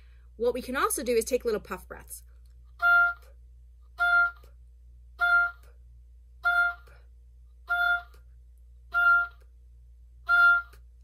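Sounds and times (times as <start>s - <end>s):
oboe playing short notes: 2.8s - 3.3s, 4.0s - 4.5s, 5.2s - 5.7s, 6.4s - 7.0s, 7.7s - 8.2s, 8.9s - 9.5s, 10.2s - 10.9s.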